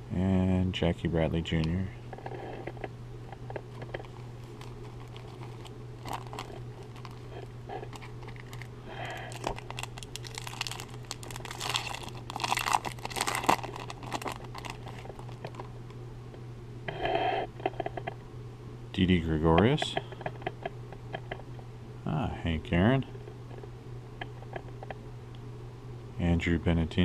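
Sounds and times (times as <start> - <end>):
wrapper crinkling and tearing: 3.7 - 15.7.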